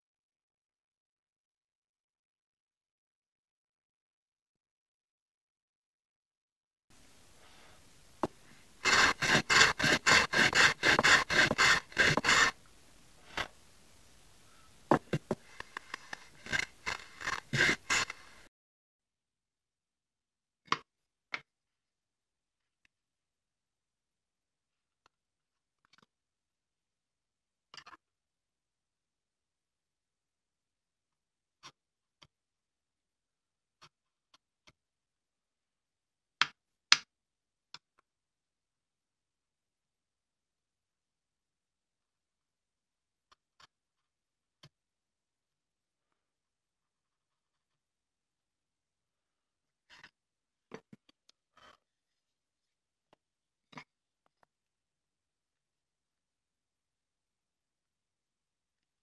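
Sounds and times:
chisel and wooden block knocking: 0:08.2 - 0:12.6, 0:14.9 - 0:18.2
hand plane shaving wood: 0:08.2 - 0:12.6, 0:14.9 - 0:18.5.

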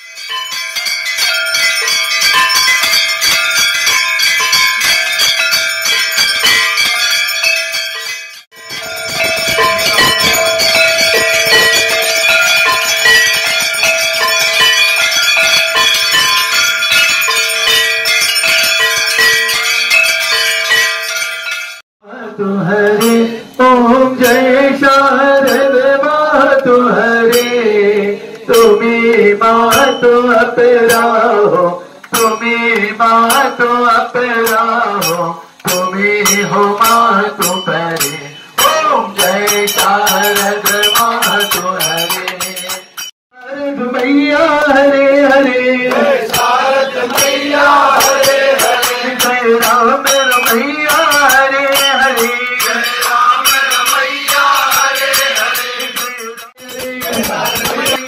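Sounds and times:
clinking rattling percussion: 0:00.0 - 0:21.8, 0:26.5 - 0:43.2, 0:43.9 - 0:58.0
person chanting a hymn: 0:22.0 - 0:42.6, 0:43.4 - 0:58.0.

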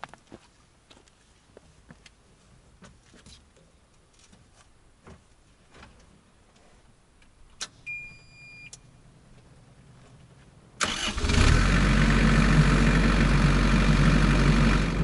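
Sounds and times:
electronic dash beep: 0:07.9 - 0:08.8.

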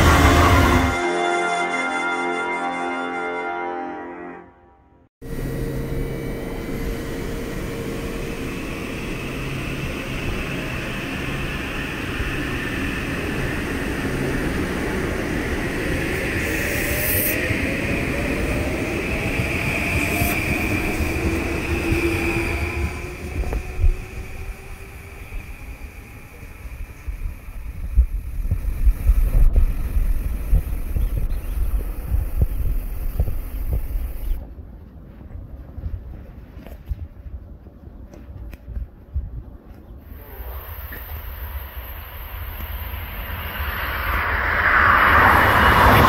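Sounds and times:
train wheels rumbling on rails: 0:00.0 - 0:01.0, 0:05.2 - 0:37.1, 0:40.0 - 0:46.0
electric motor whine: 0:05.2 - 0:12.6.

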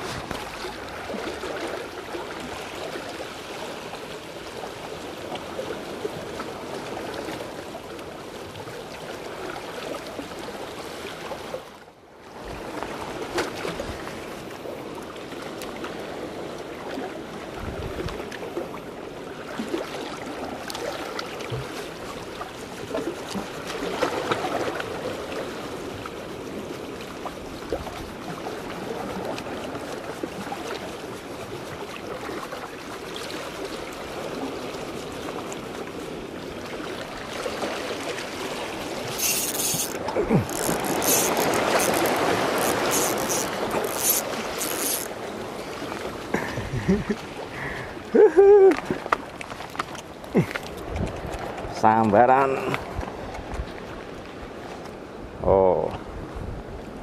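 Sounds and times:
small water splashes and clicks: 0:00.0 - 0:04.7, 0:15.0 - 0:17.1, 0:19.5 - 0:35.8, 0:36.6 - 0:45.2, 0:48.6 - 0:55.0
seawater washing and sloshing: 0:00.0 - 0:55.0.

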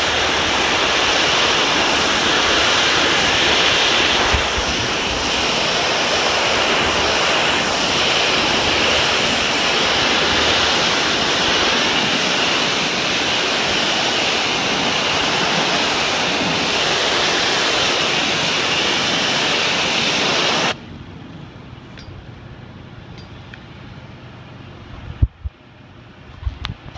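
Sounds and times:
pressure washer spraying concrete: 0:00.0 - 0:20.8.

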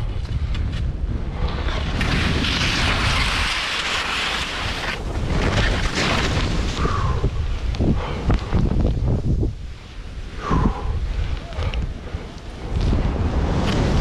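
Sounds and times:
wind buffeting microphone: 0:00.0 - 0:14.0
skis hissing through powder snow: 0:01.5 - 0:07.1.

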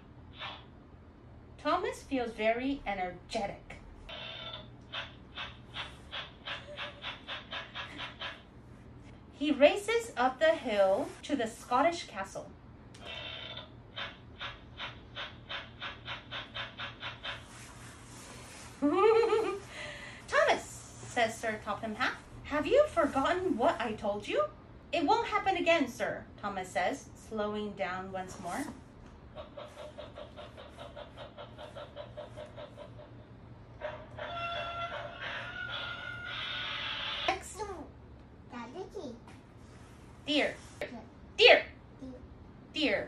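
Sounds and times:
steam train chuffing: 0:04.9 - 0:08.4, 0:13.1 - 0:18.2.

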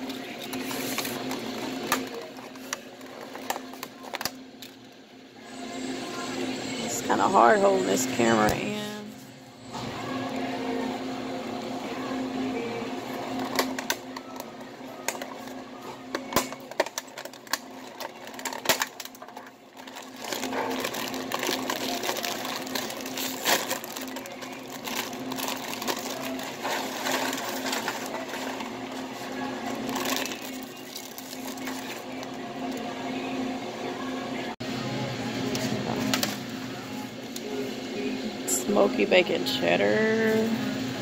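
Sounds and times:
plastic wrapping crinkling: 0:16.2 - 0:32.8.

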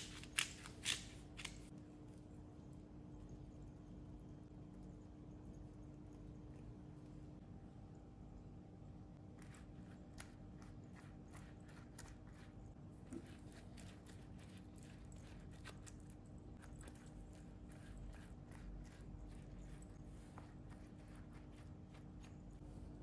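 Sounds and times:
pastry brush dabbing oil: 0:09.2 - 0:23.0.

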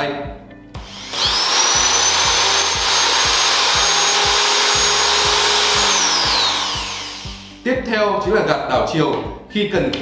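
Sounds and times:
drill motor whining: 0:00.8 - 0:07.6.

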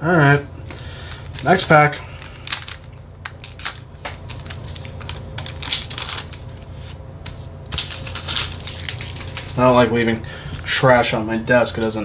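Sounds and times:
foil wrapper tearing and crinkling: 0:01.0 - 0:06.9, 0:07.7 - 0:09.7.

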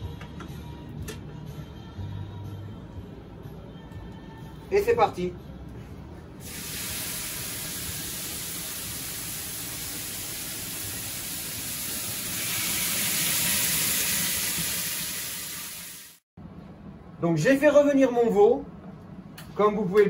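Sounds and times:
meat sizzling in oil: 0:06.4 - 0:16.2.

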